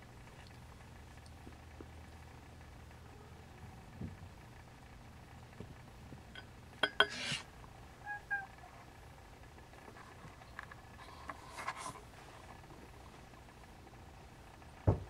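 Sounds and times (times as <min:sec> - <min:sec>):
kitten mewing: 0:08.1 - 0:08.7.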